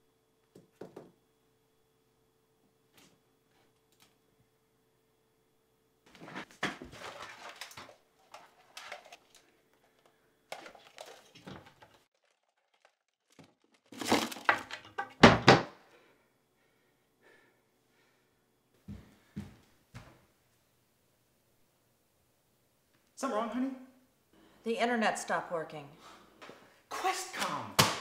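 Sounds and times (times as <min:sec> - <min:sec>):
plastic equipment rustling and clattering: 0:06.2 - 0:15.6
wooden cabinet door knocks: 0:15.2 - 0:15.7.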